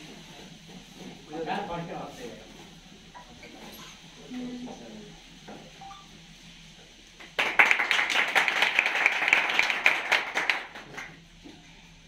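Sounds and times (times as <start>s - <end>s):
people clapping: 7.2s - 11.2s.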